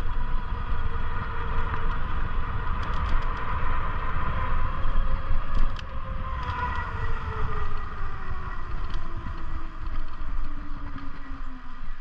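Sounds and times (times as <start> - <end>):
electric motor whine: 0.0 - 12.0
wind buffeting microphone: 0.0 - 12.0.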